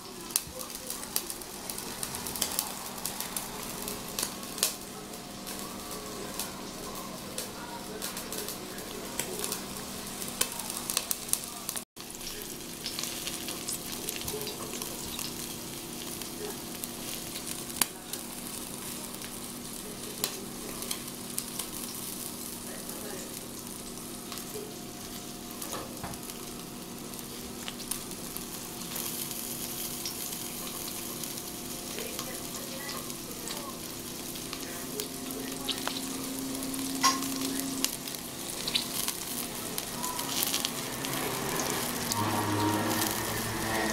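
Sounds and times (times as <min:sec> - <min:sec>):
faint fan hum: 0:00.0 - 0:43.9
meat sizzling over charcoal: 0:00.0 - 0:43.9.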